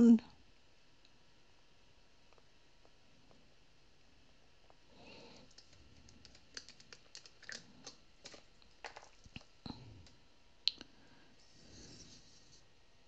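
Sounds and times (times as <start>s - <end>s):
plastic squeeze bottle handled: 5.3s - 10.2s.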